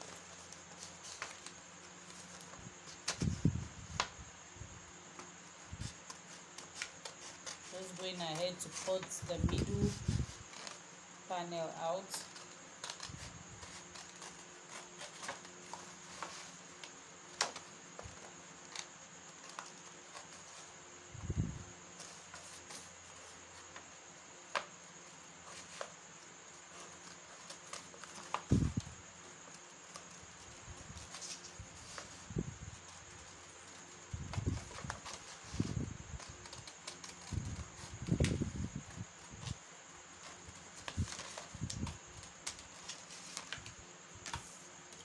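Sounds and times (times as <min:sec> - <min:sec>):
scissors cutting cardboard: 0:05.2 - 0:10.8, 0:12.0 - 0:20.6, 0:29.3 - 0:38.4
scissors snipping cardboard: 0:36.2 - 0:38.3.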